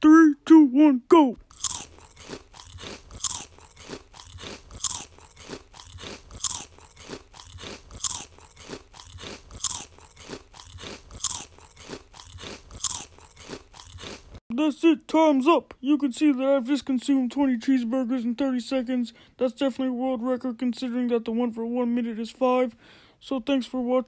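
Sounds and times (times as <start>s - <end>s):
crunching and chewing food: 1.4s - 14.4s.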